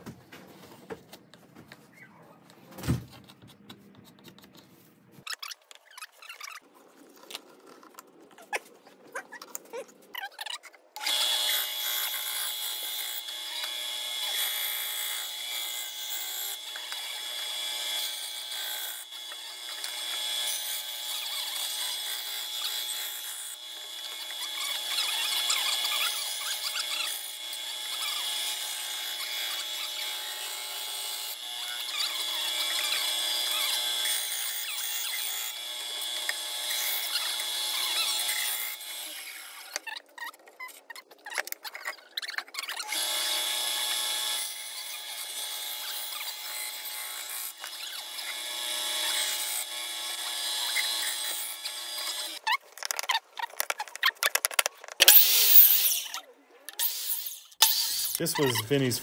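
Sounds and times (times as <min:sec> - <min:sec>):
band saw cutting wood: 0:11.0 - 0:40.0, 0:42.2 - 0:54.0, 0:56.8 - 0:59.0.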